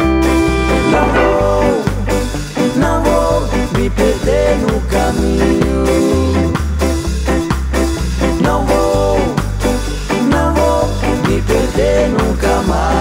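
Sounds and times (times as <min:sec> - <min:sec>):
muted electric bass notes: 0:00.0 - 0:02.5
band playing bending melody: 0:00.0 - 0:13.0.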